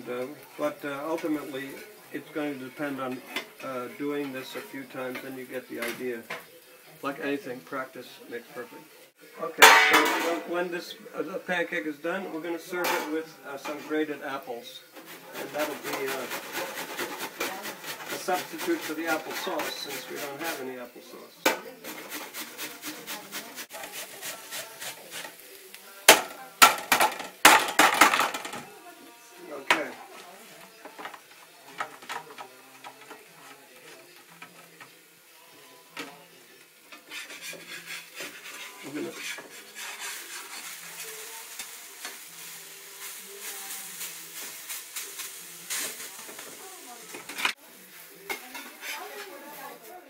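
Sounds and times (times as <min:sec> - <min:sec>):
pancake sizzling in skillet: 0:00.0 - 0:50.0
spatula scraping pan: 0:14.8 - 0:20.9, 0:21.5 - 0:28.6, 0:36.0 - 0:49.8
apple grating on metal grater: 0:15.0 - 0:20.7, 0:21.8 - 0:25.4, 0:36.9 - 0:41.2.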